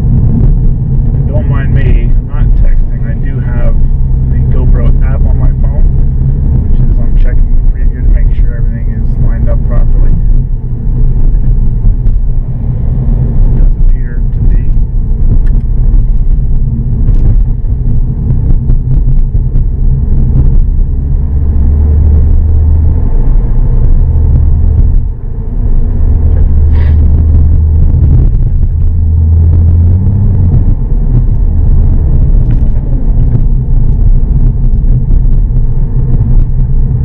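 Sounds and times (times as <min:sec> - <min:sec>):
car interior road and engine noise: 0:00.0 - 0:37.0.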